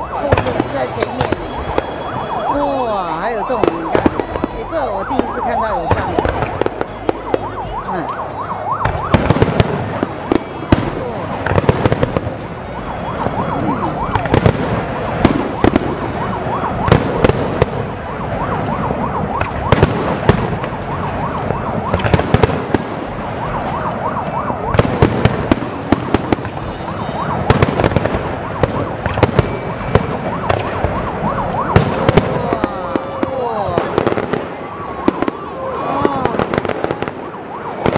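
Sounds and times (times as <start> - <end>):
fireworks bangs and crackles: 0.0 - 37.9
whistling firework shells: 0.3 - 2.6, 25.7 - 32.4, 33.8 - 37.2.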